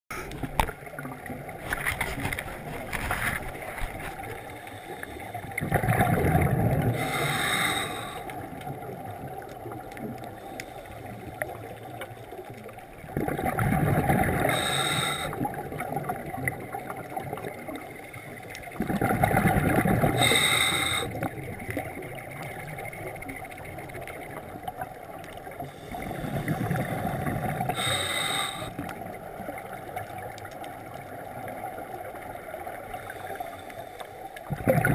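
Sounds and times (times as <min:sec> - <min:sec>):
watery background: 0:00.1 - 0:34.9
exhaled bubbles underwater: 0:00.2 - 0:34.9
regulator hiss: 0:27.8 - 0:28.7.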